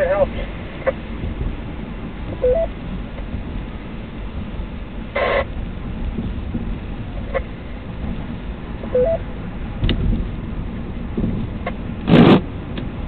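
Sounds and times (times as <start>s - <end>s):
car road rumble: 0.0s - 13.0s
two-note rising beep: 2.4s - 2.7s, 9.0s - 9.2s
radio squelch noise: 5.2s - 5.5s.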